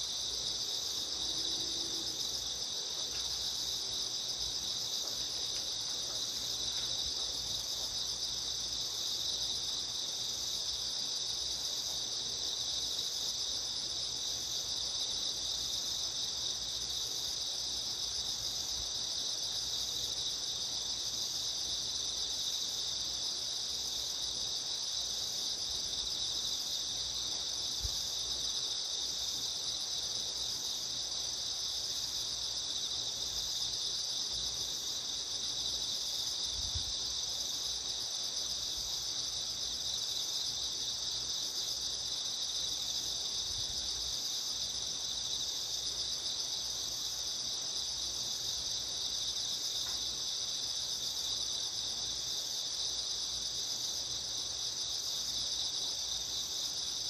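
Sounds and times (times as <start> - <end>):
crickets chirring: 0.0 - 57.0.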